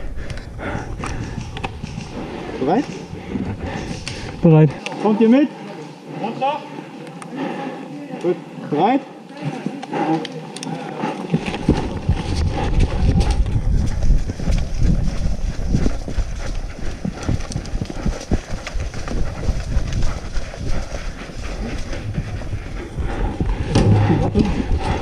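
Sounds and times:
low wind rumble: 0:00.0 - 0:04.7, 0:11.4 - 0:25.0
running footsteps: 0:00.0 - 0:25.0.

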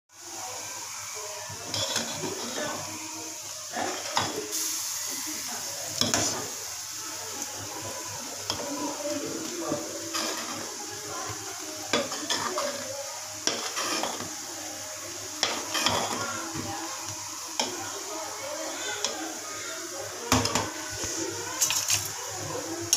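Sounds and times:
steady hiss: 0:00.2 - 0:22.9
ladle scraping a steel pot: 0:01.7 - 0:02.6, 0:10.1 - 0:10.8, 0:13.5 - 0:14.3.

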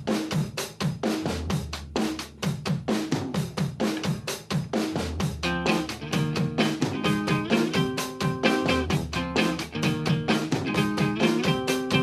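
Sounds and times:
fast drum-kit beat: 0:00.0 - 0:12.0.

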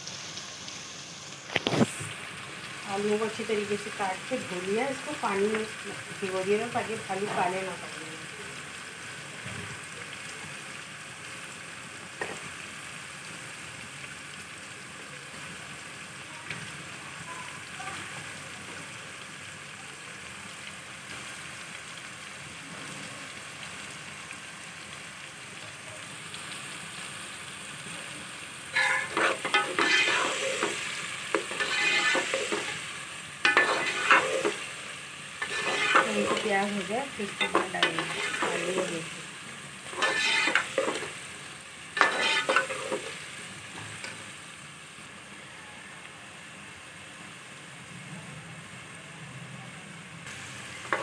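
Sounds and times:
onions sizzling in hot oil: 0:00.0 - 0:51.0
metal ladle scraping pot: 0:28.7 - 0:34.8, 0:35.4 - 0:36.5, 0:37.3 - 0:38.9, 0:39.9 - 0:41.2, 0:42.0 - 0:43.2.

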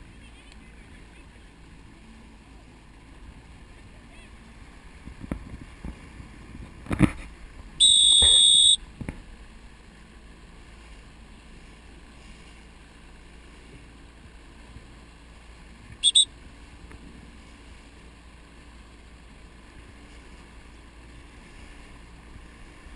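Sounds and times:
water noise: 0:00.0 - 0:22.9
wind: 0:00.0 - 0:22.9
shrill whistle blasts: 0:07.8 - 0:08.8, 0:16.0 - 0:16.3.

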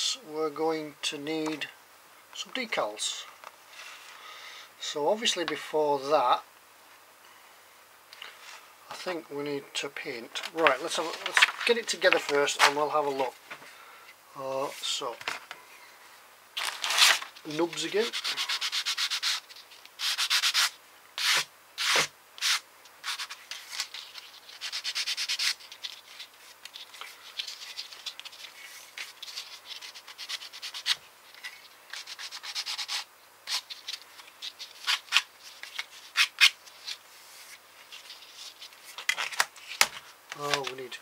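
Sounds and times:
sanding plastic parts: 0:16.6 - 0:39.8.

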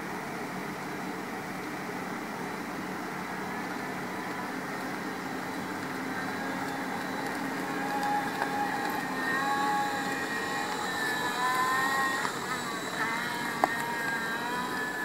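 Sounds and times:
electric drive whine: 0:00.0 - 0:15.0.

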